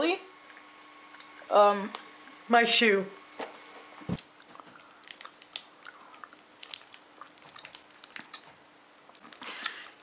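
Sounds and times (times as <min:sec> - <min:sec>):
wet chewing clicks and smacks: 0:04.4 - 0:10.0.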